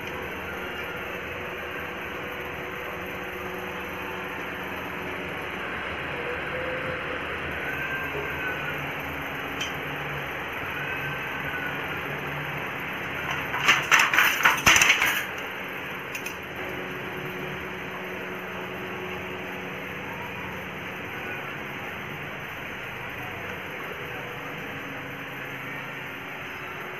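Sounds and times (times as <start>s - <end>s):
steady background hum: 0.0s - 26.9s
handloom shuttle clattering: 13.0s - 15.5s, 16.1s - 16.4s.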